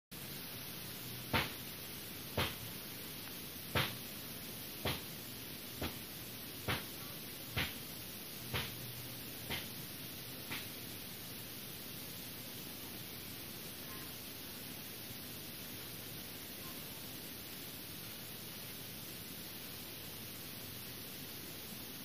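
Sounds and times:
steady hiss: 0.1s - 22.0s.

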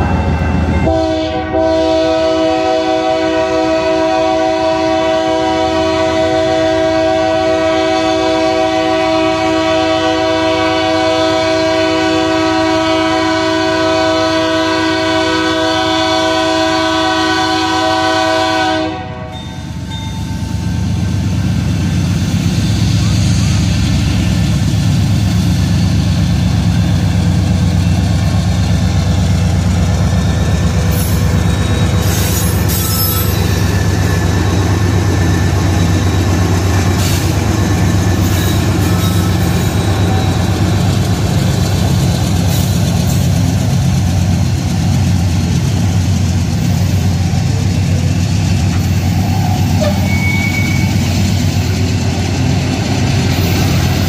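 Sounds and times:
train wheels on rails: 0.0s - 54.0s
high wheel squeaks: 29.8s - 34.4s, 36.9s - 41.8s, 48.7s - 51.7s.

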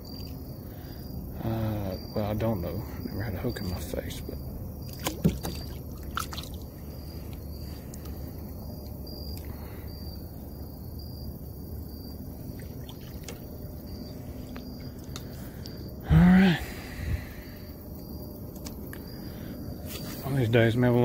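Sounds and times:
low steady rumble: 0.0s - 21.0s
water trickling and lapping: 3.6s - 9.9s, 12.2s - 15.9s.

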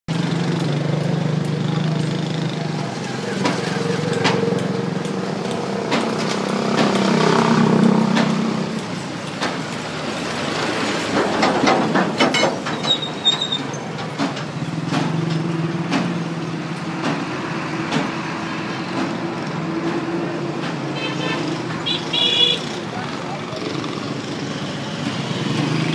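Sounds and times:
vehicle engine running: 0.1s - 10.8s
sharp clicks and knocks: 3.4s - 9.9s, 11.1s - 18.3s, 18.9s - 20.9s.

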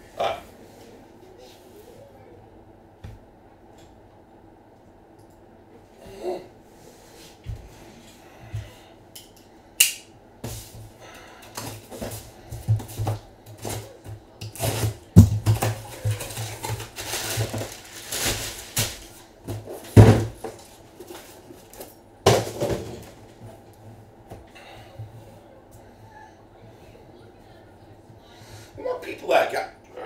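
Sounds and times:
knocks and thuds of packs: 11.5s - 23.4s
cardboard flaps rustling: 11.7s - 21.7s.

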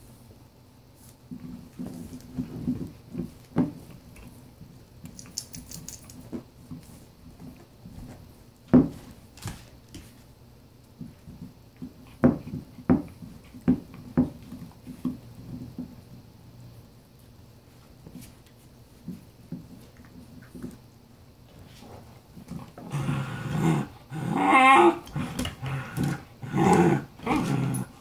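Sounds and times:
puppy growling: 22.6s - 28.0s.

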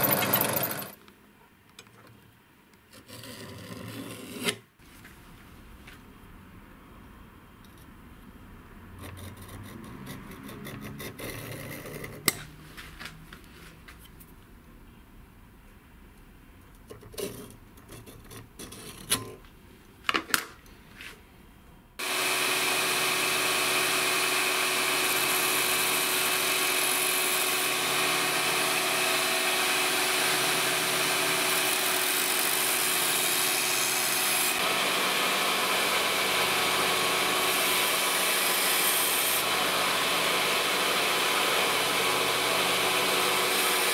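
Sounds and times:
belt grinder grinding steel: 0.0s - 1.0s, 22.0s - 43.9s.

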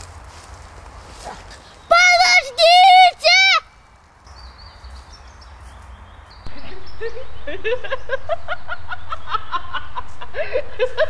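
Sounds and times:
low wind rumble: 0.0s - 11.0s
children laughing and giggling: 6.5s - 11.0s.

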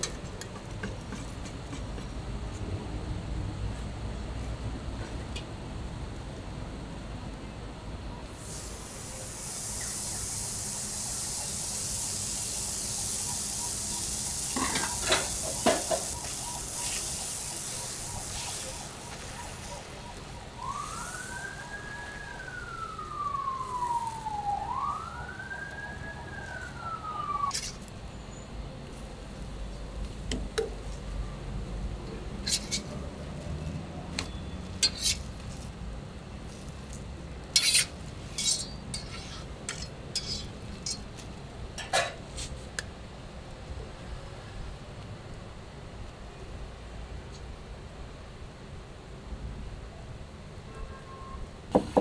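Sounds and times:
crepe batter sizzling on griddle: 8.3s - 22.7s
siren wailing: 13.2s - 27.5s.

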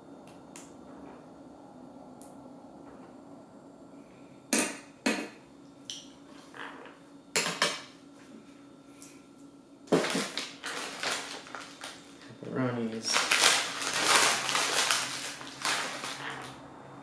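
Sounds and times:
kitchen items clattering: 9.9s - 12.0s, 13.0s - 16.6s.

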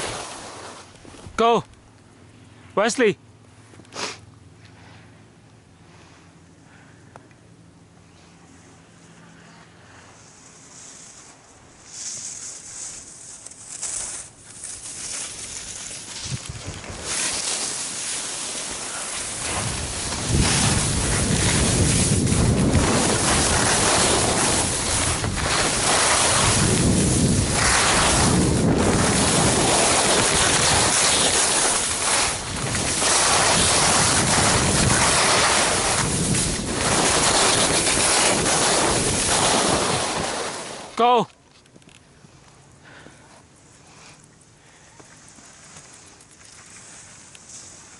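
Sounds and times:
skis scraping on snow: 0.0s - 1.3s, 9.9s - 41.0s
wind buffeting microphone: 19.2s - 40.2s.

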